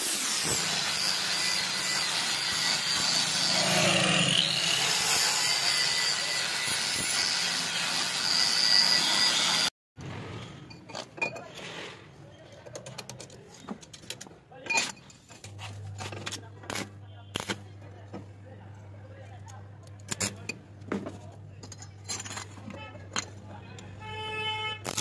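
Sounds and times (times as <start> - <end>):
angle grinder cutting steel: 0.0 - 9.7.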